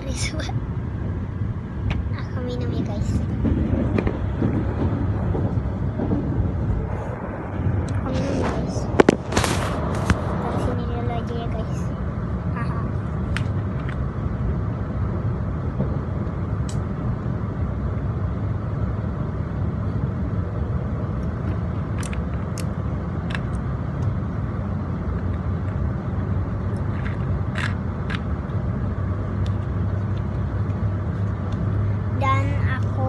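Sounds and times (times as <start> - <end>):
train cabin rumble: 0.0 - 33.0.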